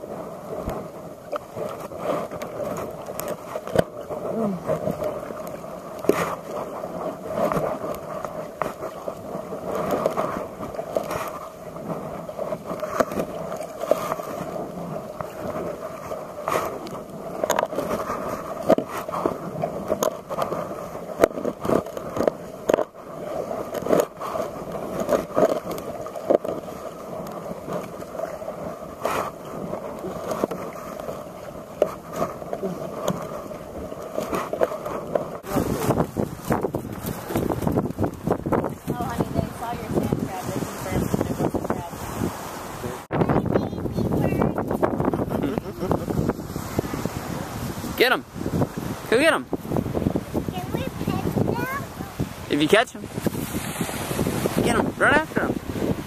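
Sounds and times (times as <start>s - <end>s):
water splashing with paddle strokes: 0.0s - 56.0s
paddle knocking on kayak: 0.6s - 42.3s.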